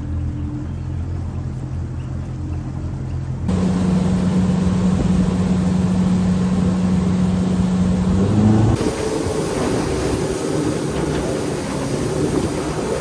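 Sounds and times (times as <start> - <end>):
outboard motor running: 0.0 - 13.0
rushing wind and water: 3.5 - 13.0.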